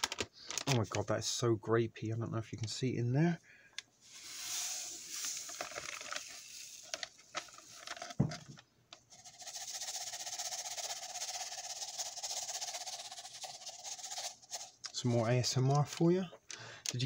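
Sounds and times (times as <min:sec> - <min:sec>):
granules shifting in plastic cup: 0:00.0 - 0:01.0, 0:04.0 - 0:15.0.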